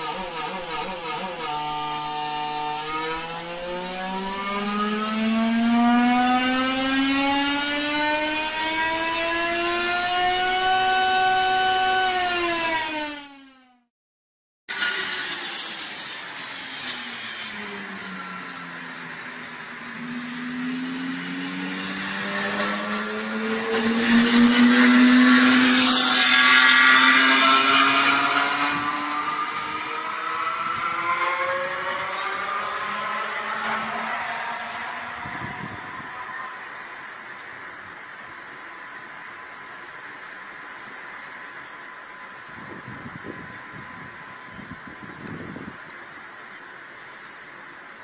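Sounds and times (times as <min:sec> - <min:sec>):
racing car engine accelerating: 0:00.0 - 0:13.9, 0:14.7 - 0:37.4.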